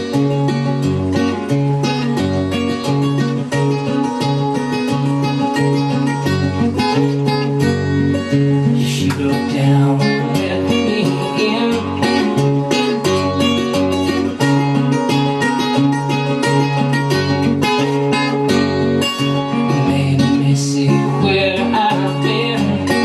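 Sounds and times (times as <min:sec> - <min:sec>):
strummed acoustic guitar: 0:00.0 - 0:23.0.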